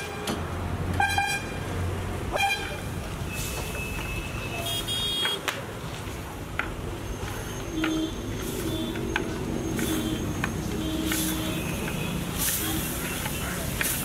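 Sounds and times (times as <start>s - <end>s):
vehicle horns honking: 0.0s - 1.6s, 2.3s - 5.5s, 7.7s - 9.1s, 9.8s - 13.6s.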